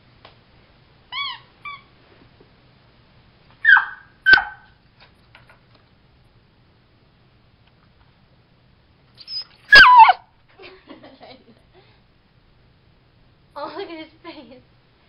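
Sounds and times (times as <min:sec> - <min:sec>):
puppy whimpering: 0:01.1 - 0:01.9, 0:09.2 - 0:10.2
puppy yapping: 0:03.6 - 0:04.8, 0:09.2 - 0:10.2.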